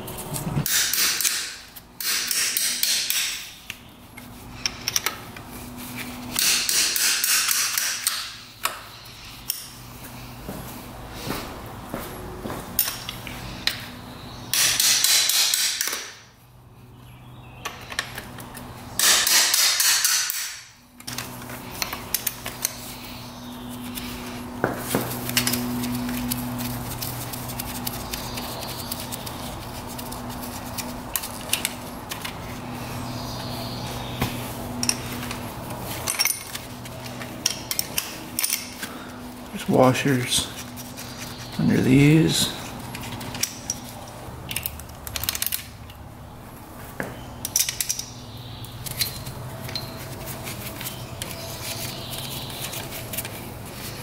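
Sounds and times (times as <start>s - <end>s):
steady low hum: 0.0s - 54.0s
metallic clicks of tools: 47.4s - 48.1s.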